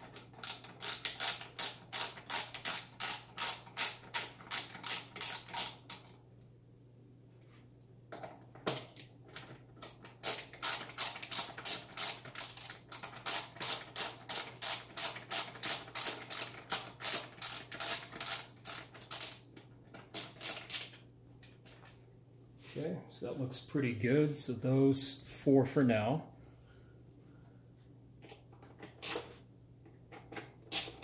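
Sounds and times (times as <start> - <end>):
ratchet screwdriver clicking: 0.4 - 6.1, 10.2 - 19.4, 30.7 - 31.0.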